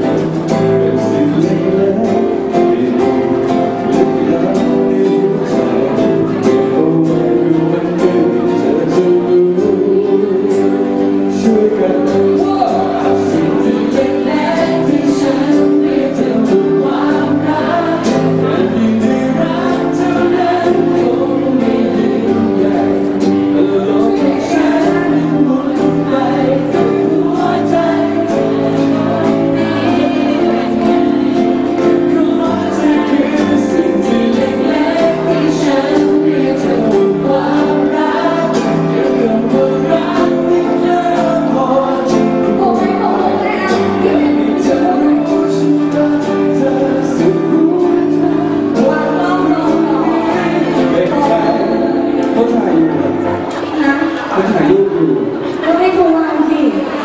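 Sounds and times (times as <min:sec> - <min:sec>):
man singing along: 0:00.0 - 0:56.0
acoustic guitar strumming: 0:00.0 - 0:57.0
woman singing into a microphone: 0:42.4 - 0:46.5, 0:47.2 - 0:51.2.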